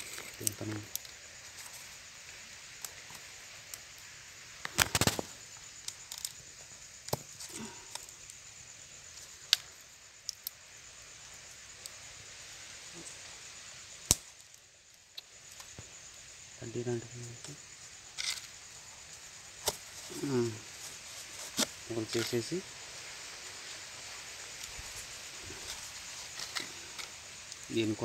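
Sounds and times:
cardboard clicking and crackling: 4.7s - 5.3s.

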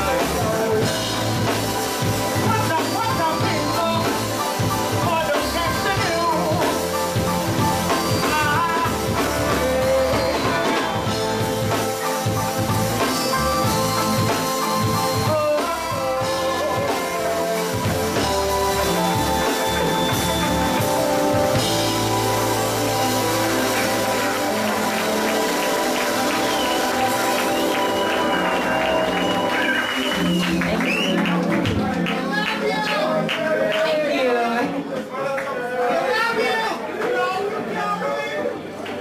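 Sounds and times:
live band playing: 0.0s - 35.0s
woman singing: 5.0s - 7.0s, 7.9s - 11.8s.

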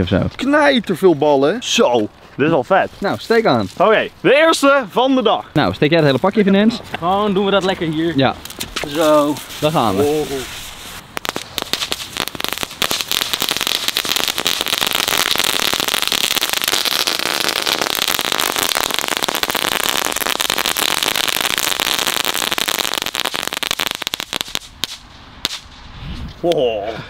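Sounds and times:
crackling fireworks: 8.4s - 25.9s.

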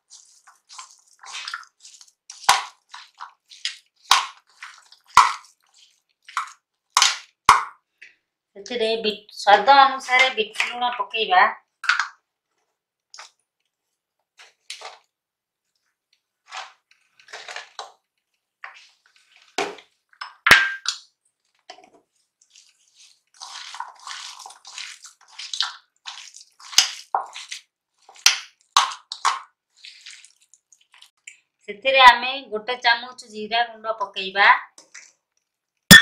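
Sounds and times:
hands squishing mashed potato: 0.0s - 8.3s, 11.8s - 31.6s.

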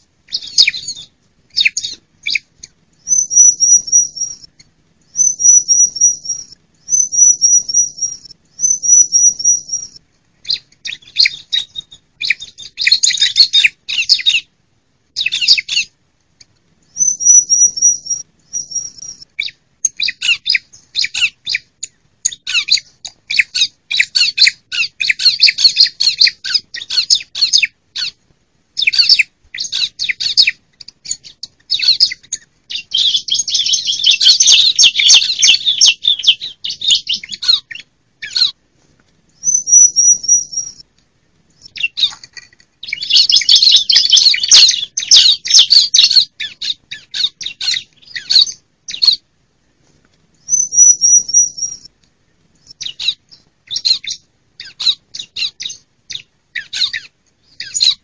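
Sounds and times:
bird trill: 0.0s - 14.5s, 15.1s - 16.0s, 16.9s - 28.2s, 28.8s - 38.6s, 39.4s - 40.9s, 41.6s - 49.2s, 50.4s - 51.9s, 52.6s - 58.0s
bird chattering calls: 28.8s - 38.6s, 42.8s - 49.2s.

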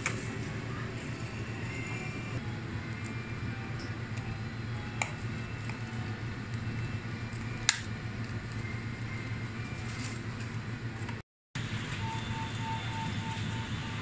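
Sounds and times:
coffee machine humming: 0.0s - 14.0s.

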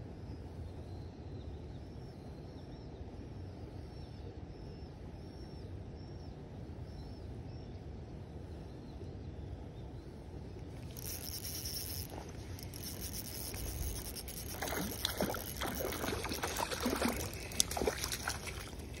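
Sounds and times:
fish splashing at water surface: 10.8s - 19.0s.

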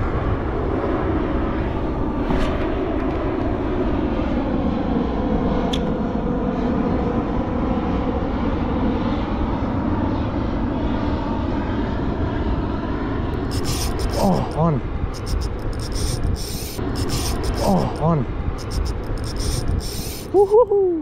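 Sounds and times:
sharp click: 13.4s - 14.3s, 15.2s - 17.8s, 18.6s - 20.6s.

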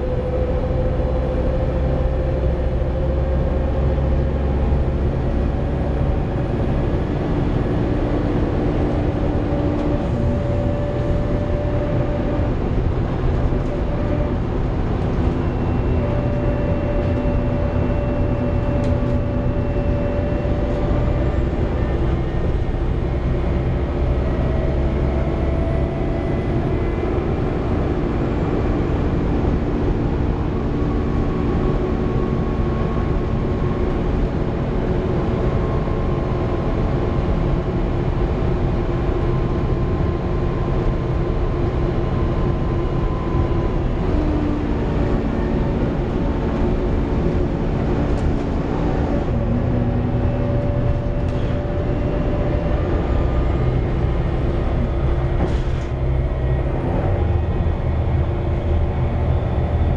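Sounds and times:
bus diesel engine drone: 0.0s - 59.9s
whining tones: 9.1s - 27.1s.

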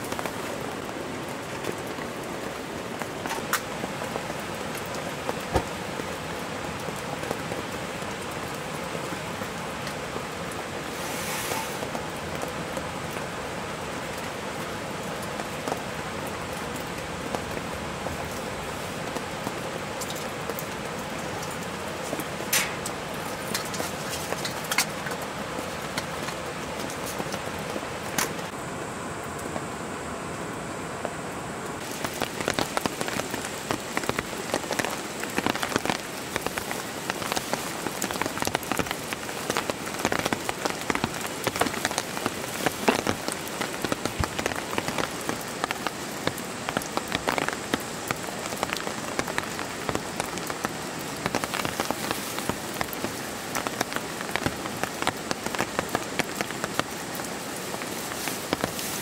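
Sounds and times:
raindrops tapping on a surface: 0.0s - 28.6s, 31.8s - 59.0s.

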